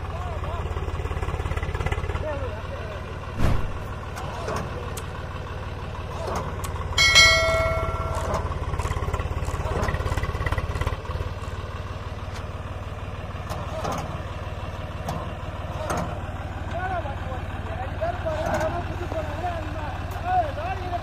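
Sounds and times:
diesel tractor engines under load: 0.0 - 21.0
bell-like ding: 7.0 - 8.7.

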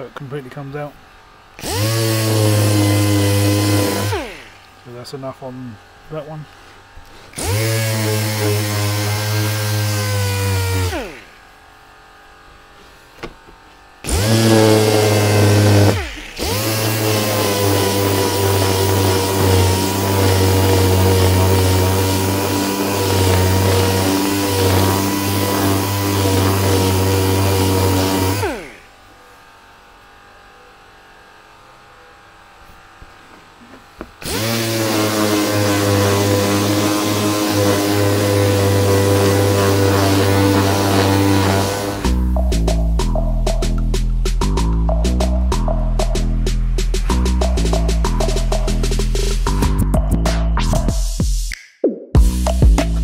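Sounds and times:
power sander running: 0.0 - 30.3, 32.8 - 43.9
sander spinning down: 1.4 - 30.3, 33.0 - 43.9.

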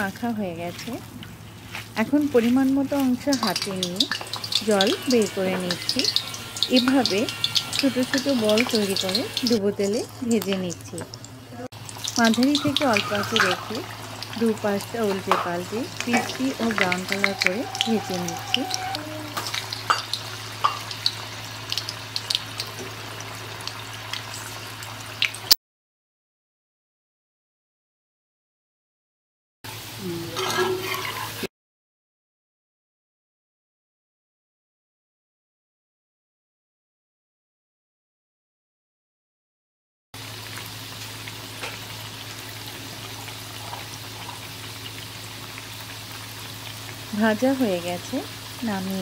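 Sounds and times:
deep-frying in hot oil: 0.0 - 25.6, 29.7 - 31.5, 40.2 - 49.0
oil crackles and pops: 2.8 - 18.6, 19.3 - 25.6, 40.2 - 47.1.

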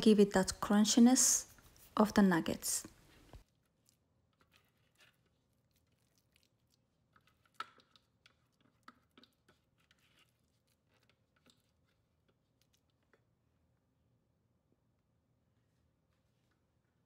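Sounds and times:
spatula scraping plastic container: 4.3 - 6.2, 7.1 - 12.4.

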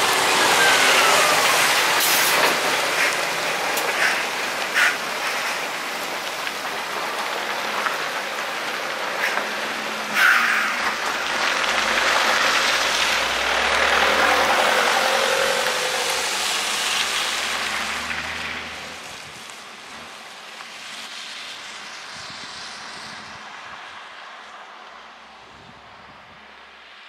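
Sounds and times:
tyre hiss on wet road: 0.0 - 25.5
van engine noise: 0.0 - 27.0.

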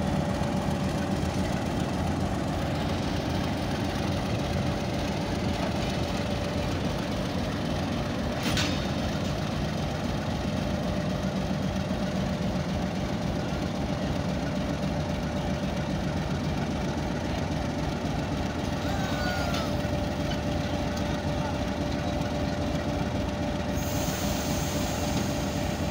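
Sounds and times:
diesel locomotive engine idling: 0.0 - 25.9.

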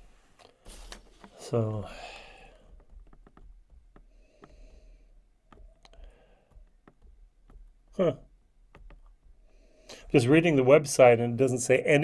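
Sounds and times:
small clicks: 2.5 - 10.2.

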